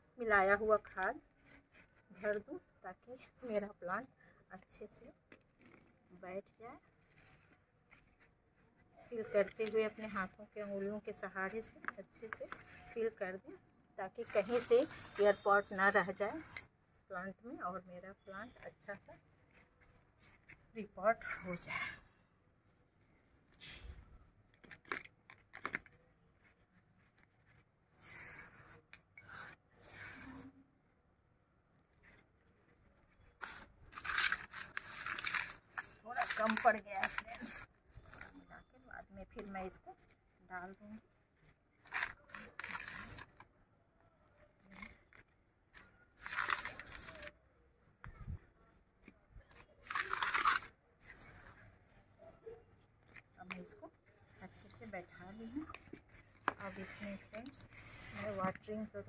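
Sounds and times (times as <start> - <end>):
potting mix crackling: 33.1 - 43.4.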